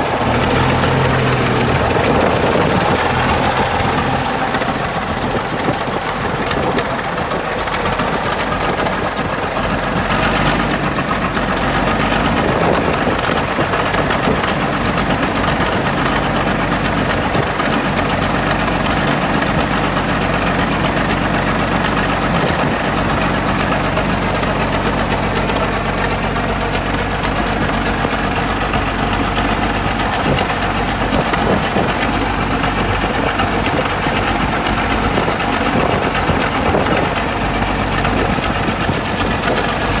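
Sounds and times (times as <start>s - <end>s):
bulldozer engine running: 0.0s - 40.0s.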